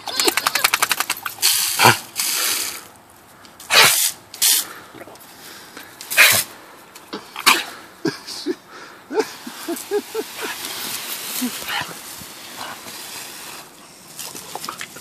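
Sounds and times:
hose nozzle spraying: 0:03.7 - 0:04.7.

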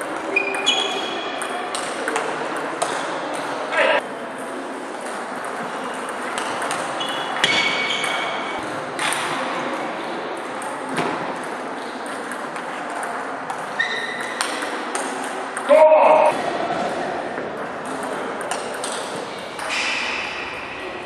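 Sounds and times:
table tennis balls clicking: 0:00.1 - 0:03.6, 0:04.5 - 0:09.4, 0:10.4 - 0:15.8, 0:17.5 - 0:19.8
brief squeak: 0:00.3 - 0:01.3, 0:07.0 - 0:08.4, 0:13.8 - 0:14.3.

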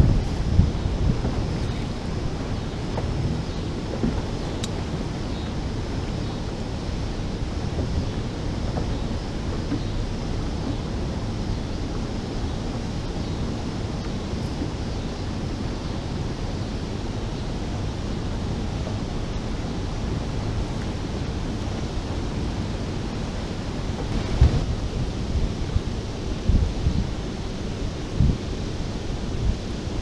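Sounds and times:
turbulent water rushing: 0:00.0 - 0:30.0
wind on microphone: 0:00.0 - 0:30.0
low bumps: 0:20.3 - 0:25.8.

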